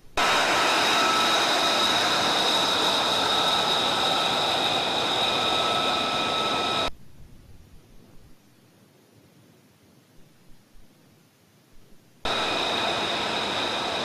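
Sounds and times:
jet engine hissing and whining: 0.2s - 6.9s, 12.3s - 14.0s.

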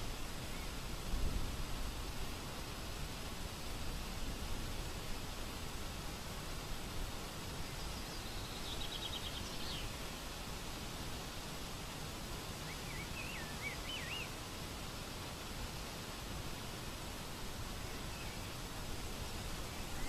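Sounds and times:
outdoor background hiss: 0.0s - 20.0s
songbird calls: 7.6s - 10.0s, 12.6s - 14.4s, 19.7s - 20.0s.

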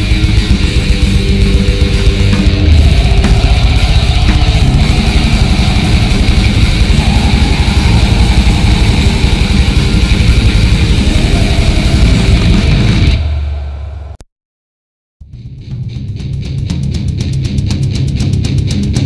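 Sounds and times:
distorted guitar and drums: 0.0s - 14.2s, 15.2s - 19.0s
low sustained guitar note: 0.1s - 14.1s.

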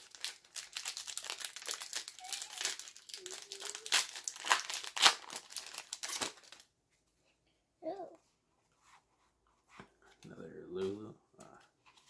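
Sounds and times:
foil wrapper crinkling: 0.0s - 6.7s.

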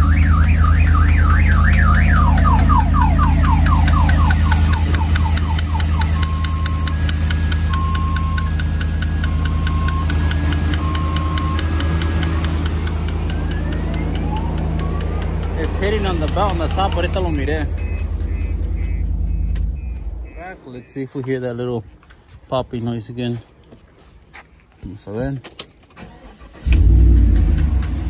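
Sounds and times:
car alarm siren: 0.0s - 11.8s, 13.0s - 21.0s
pickup engine idling: 0.0s - 20.9s
fast ticking: 1.5s - 21.0s.

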